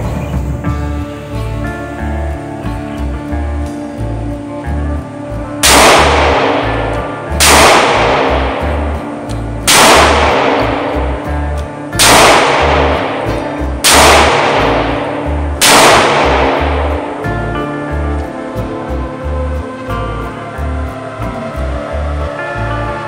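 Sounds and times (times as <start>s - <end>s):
background music: 0.0s - 23.0s
revolver shots echoing: 5.6s - 17.6s.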